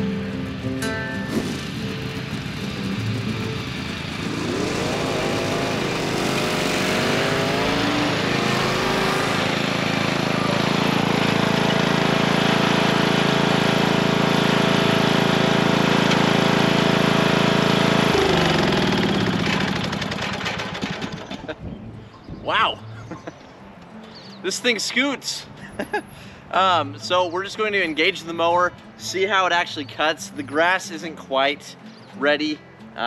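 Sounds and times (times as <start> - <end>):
riding lawn mower engine: 0.0 - 21.6.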